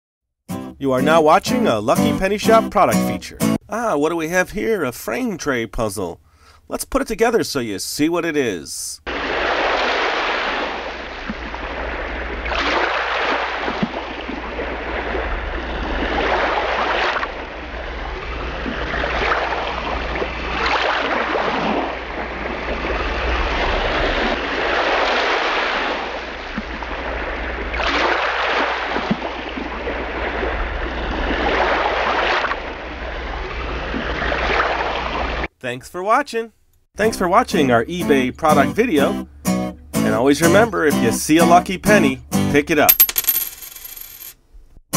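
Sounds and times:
ocean waves rushing: 9.1s - 35.4s.

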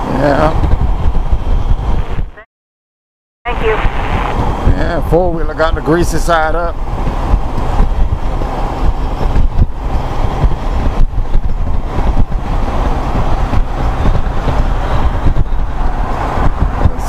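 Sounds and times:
wind buffeting microphone: 0.0s - 2.4s, 3.5s - 17.0s
road noise: 0.0s - 2.5s, 3.5s - 17.0s
motorcycle engine rumble: 3.5s - 17.0s.

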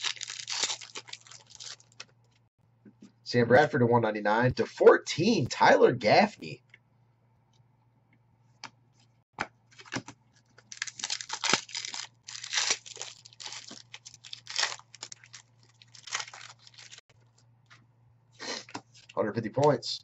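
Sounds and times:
foil wrapper ripping and crinkling: 0.0s - 2.1s, 10.6s - 17.0s.

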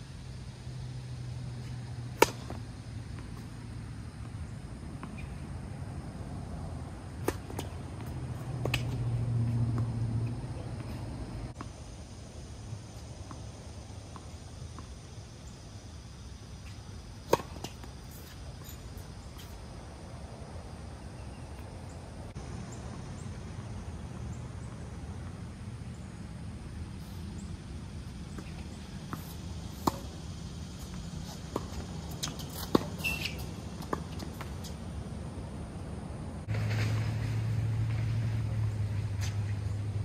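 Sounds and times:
tennis balls struck by rackets: 1.6s - 5.6s, 7.0s - 11.7s, 17.2s - 18.6s, 28.2s - 34.9s
tennis balls bouncing on court: 1.7s - 5.6s, 7.0s - 11.8s, 17.2s - 19.5s, 28.2s - 34.9s.

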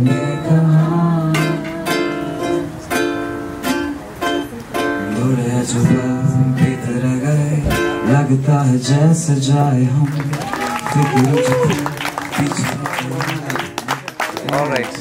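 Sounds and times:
low voice singing: 0.0s - 3.5s, 4.8s - 13.1s
plucked string instrument strummed: 0.0s - 10.0s.

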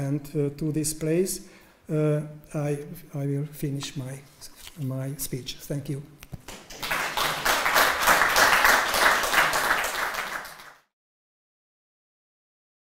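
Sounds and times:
audience applauding: 6.5s - 10.9s.

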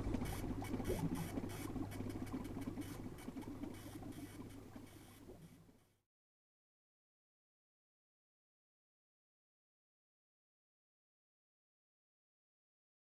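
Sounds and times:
steady low hum: 0.0s - 6.0s.

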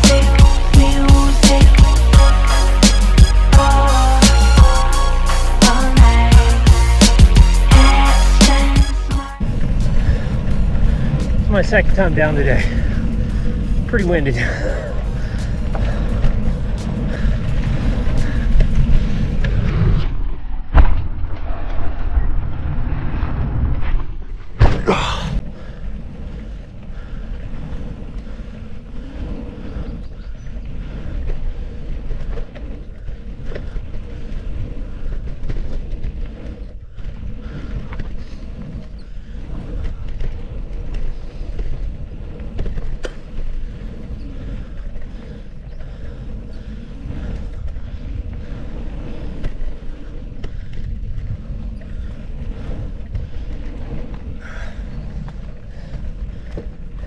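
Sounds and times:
bike tyres rumbling over dirt: 5.9s - 57.0s
bike clicks and rattles: 9.4s - 20.2s, 24.4s - 57.0s
wind rushing on microphone: 9.4s - 57.0s.

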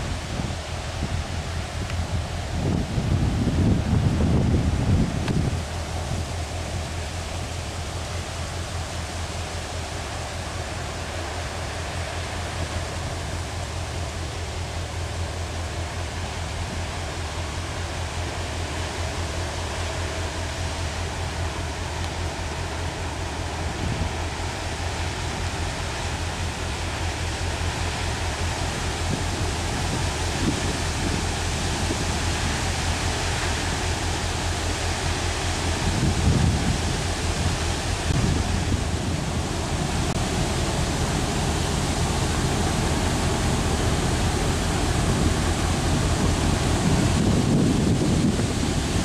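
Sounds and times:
wind on microphone: 0.0s - 6.4s, 28.9s - 33.0s, 35.6s - 49.0s
ship diesel engine drone: 0.0s - 49.0s.

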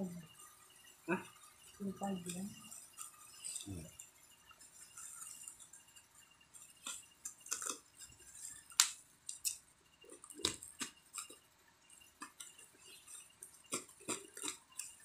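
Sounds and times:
sharp clicks and snaps: 8.7s - 11.4s, 12.2s - 15.0s.

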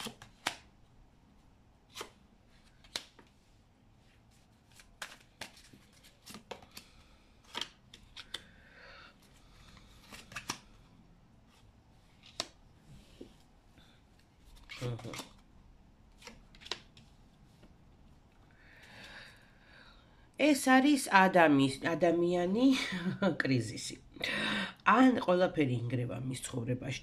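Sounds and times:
cards flicking and tapping: 0.0s - 0.7s, 1.9s - 3.3s, 4.7s - 8.5s, 10.0s - 10.7s, 12.2s - 12.6s.

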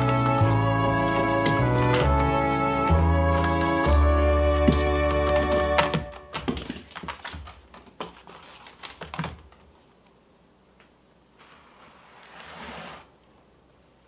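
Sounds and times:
rope scraping on a mat: 11.4s - 13.2s.

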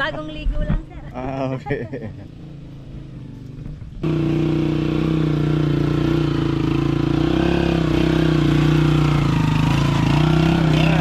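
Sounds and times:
small engine running: 2.4s - 11.0s.

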